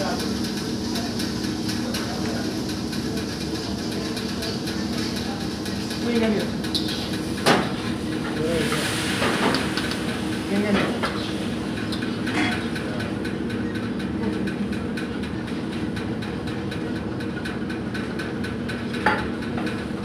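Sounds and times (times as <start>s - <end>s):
kitchen equipment humming: 0.0s - 20.0s.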